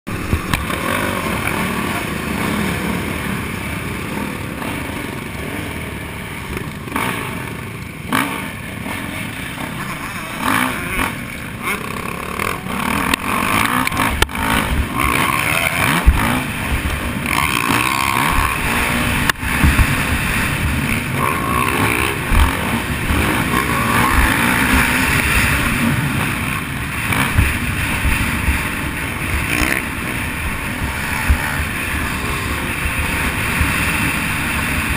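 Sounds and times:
motocross bike engine revving: 0.1s - 34.9s
other motocross bikes: 0.1s - 34.9s
wind buffeting microphone: 18.2s - 21.2s.

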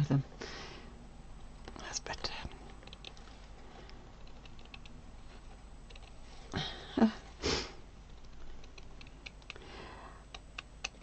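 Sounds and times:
person breathing: 0.4s - 1.0s, 3.4s - 4.1s, 6.4s - 7.8s, 9.5s - 10.4s.

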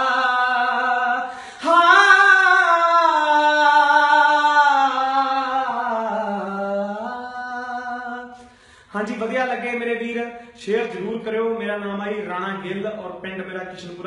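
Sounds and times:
man singing unaccompanied: 0.0s - 14.0s
man breathing: 1.2s - 1.7s, 8.3s - 9.0s.

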